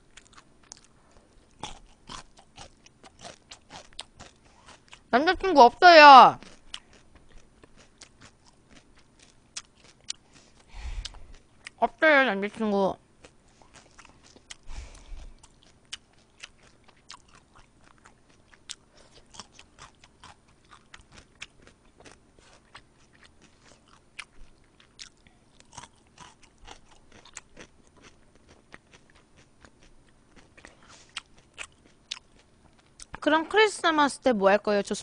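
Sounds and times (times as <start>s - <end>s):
crisp chewing crunches: 0.0s - 5.1s, 6.4s - 11.8s, 13.2s - 33.2s.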